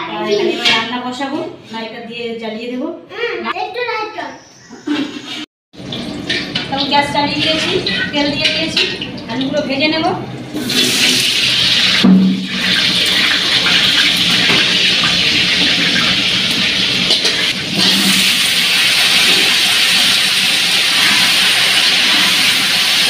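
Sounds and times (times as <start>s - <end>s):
potatoes sizzling in hot oil: 12.6s - 23.0s.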